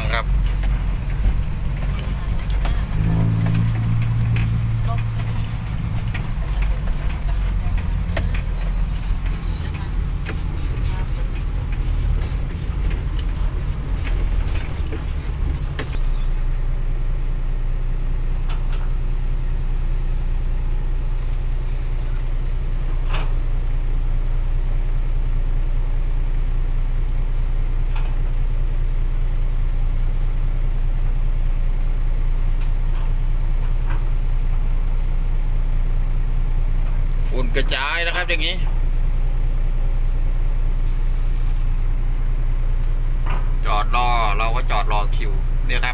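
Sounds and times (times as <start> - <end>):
diesel engine rumbling: 0.0 - 45.9.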